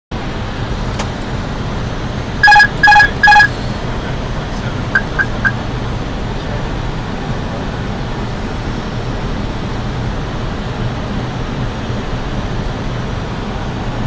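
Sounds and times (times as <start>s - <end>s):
cockpit rush and hum: 2.1s - 6.0s
loud electronic beeps: 2.4s - 3.6s, 5.0s - 5.6s.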